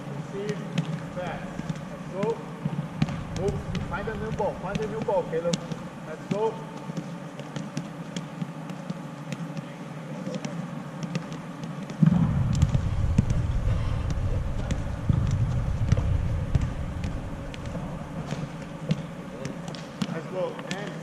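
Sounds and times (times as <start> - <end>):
balls kicked on turf: 0.3 - 21.0
loud low rumble: 3.0 - 4.8, 12.0 - 18.8.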